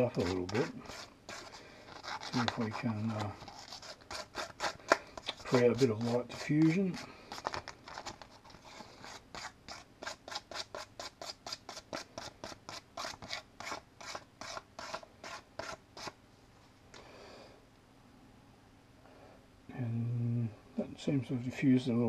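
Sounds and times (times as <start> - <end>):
abrasive rubbing on plastic: 0.0 - 12.0.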